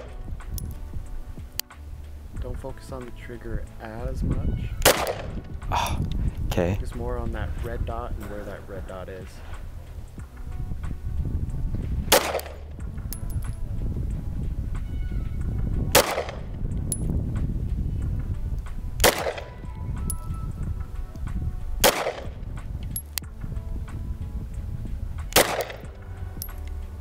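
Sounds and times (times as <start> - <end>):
low background rumble: 0.0 - 27.0
pistol shots with echo: 4.8 - 5.4, 12.1 - 12.7, 15.9 - 16.5, 19.0 - 19.6, 21.8 - 22.4, 25.3 - 26.6.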